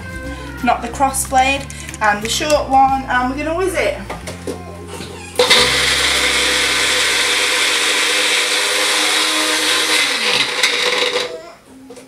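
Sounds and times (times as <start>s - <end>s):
blender motor whizzing: 5.4s - 11.4s.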